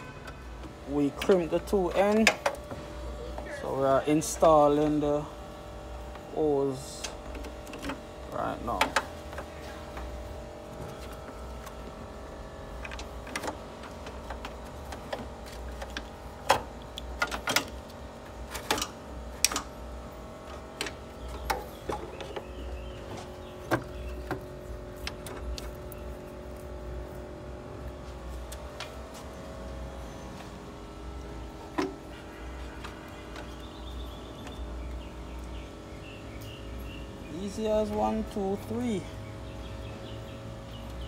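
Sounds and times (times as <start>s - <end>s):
steady background hum: 0.0s - 41.0s.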